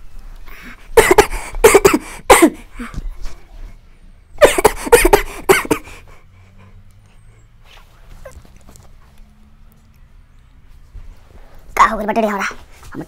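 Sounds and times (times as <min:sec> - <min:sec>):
man coughing: 0:01.0 - 0:02.9, 0:04.4 - 0:06.0.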